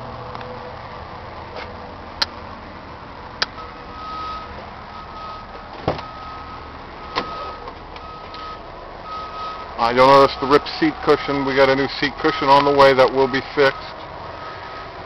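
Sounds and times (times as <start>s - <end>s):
heavy thump: 5.7s - 6.1s.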